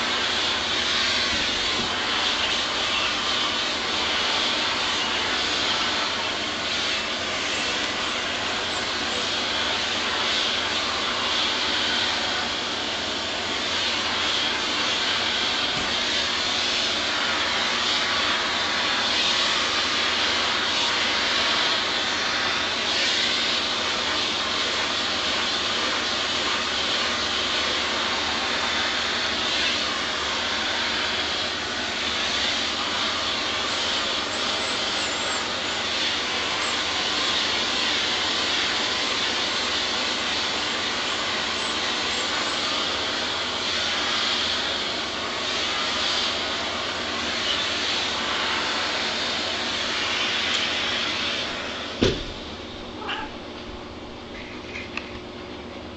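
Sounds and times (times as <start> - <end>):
vacuum cleaner running: 0.0 - 55.9.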